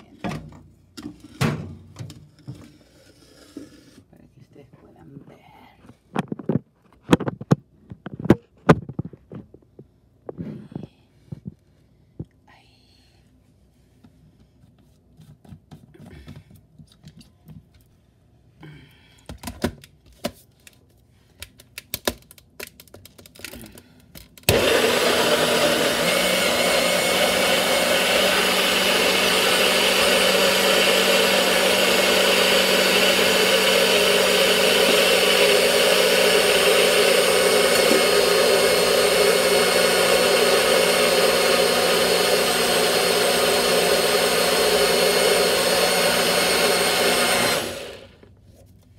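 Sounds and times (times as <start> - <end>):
blender motor running: 24.5 - 48.2.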